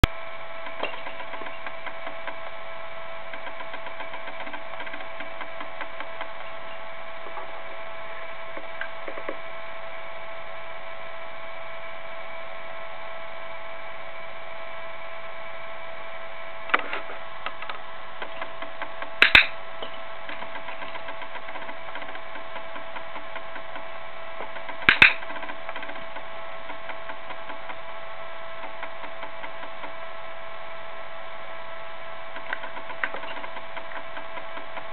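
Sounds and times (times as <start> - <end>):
steady electrical whine: 0.0 - 34.9
sharp clicks: 32.4 - 34.9.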